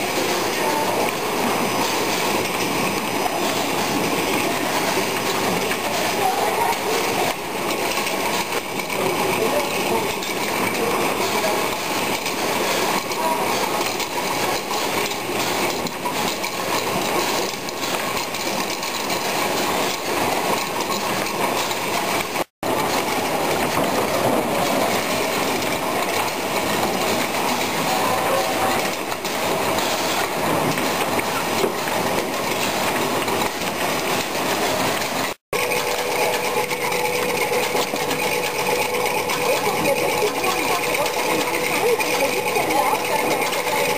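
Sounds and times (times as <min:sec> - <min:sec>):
conveyor mechanical clatter: 0:00.0 - 0:43.9.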